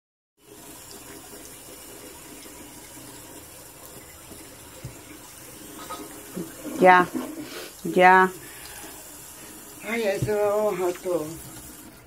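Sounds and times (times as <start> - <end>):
faucet running into sink: 0.4 - 12.0.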